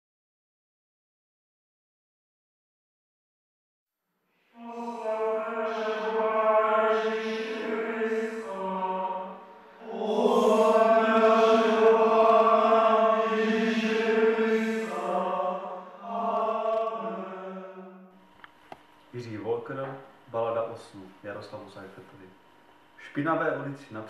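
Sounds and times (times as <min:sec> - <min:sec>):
slow chant-like vocal music: 0:04.4 - 0:18.2.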